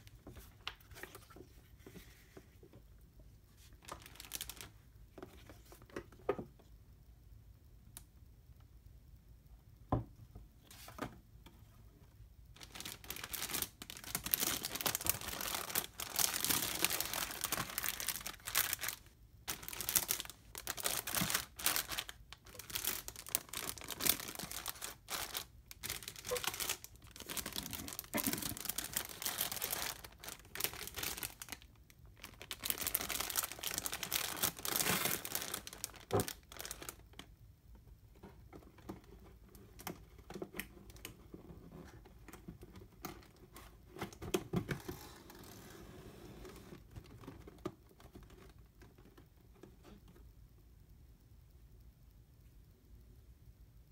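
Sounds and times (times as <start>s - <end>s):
plastic bags crinkling: 3.8s - 4.8s, 12.6s - 37.2s.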